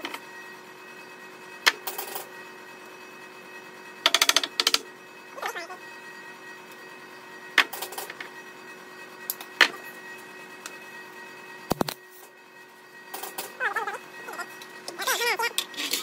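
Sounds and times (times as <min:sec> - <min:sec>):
electrical hum: 0:00.0 - 0:16.0
wavering voice-like sound: 0:05.4 - 0:05.9, 0:13.5 - 0:15.7.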